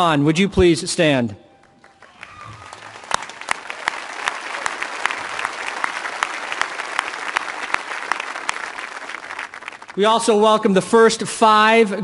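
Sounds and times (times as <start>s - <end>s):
sharp close claps: 1.6s - 10.0s
crowd applauding: 1.6s - 10.3s.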